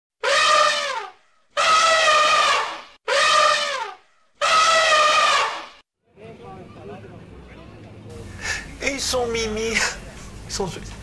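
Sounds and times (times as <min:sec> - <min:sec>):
elephant trumpeting: 0:00.2 - 0:05.8.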